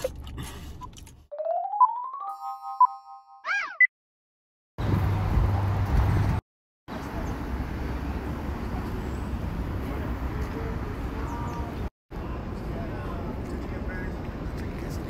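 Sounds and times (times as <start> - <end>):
traffic rumble: 0.0 - 1.2, 4.8 - 15.0.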